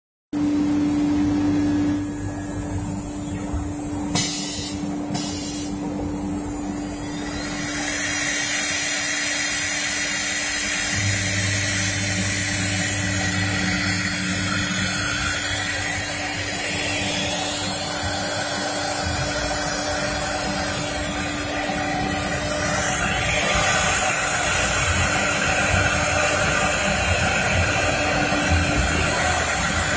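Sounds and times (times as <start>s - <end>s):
short pneumatic hisses: 4.2s - 5.8s
router spindles whining: 6.3s - 29.9s.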